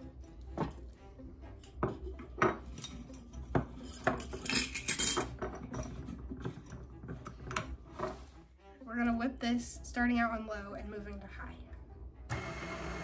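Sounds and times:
glass bottle clinking on metal bowl: 0:01.7 - 0:06.9.

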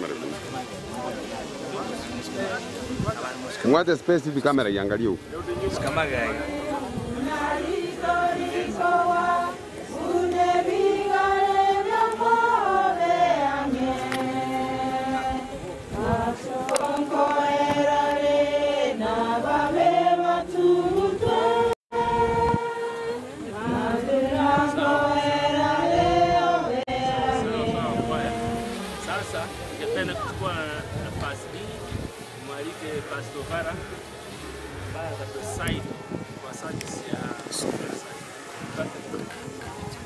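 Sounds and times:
group of voices singing: 0:05.5 - 0:30.3.

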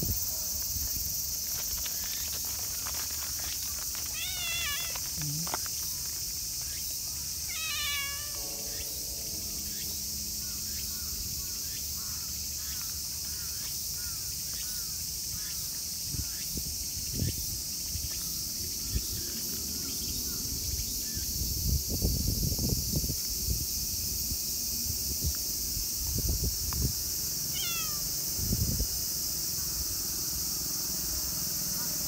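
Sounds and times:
insects droning: 0:00.0 - 0:32.0
cat meowing: 0:04.1 - 0:05.1, 0:07.5 - 0:08.4, 0:27.5 - 0:28.0.

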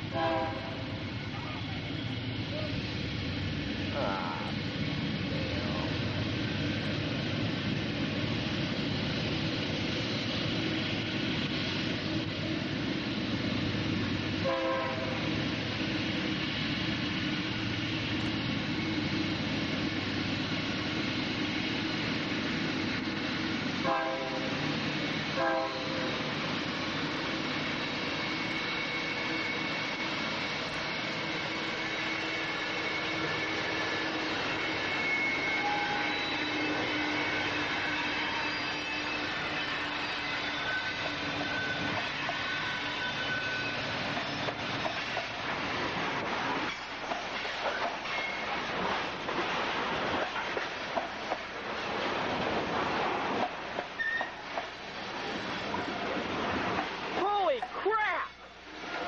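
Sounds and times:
locomotive engine drone: 0:00.0 - 0:59.0
train horn blasts: 0:00.1 - 0:00.9, 0:14.4 - 0:15.3, 0:23.8 - 0:24.6, 0:25.4 - 0:26.1, 0:34.8 - 0:43.7.

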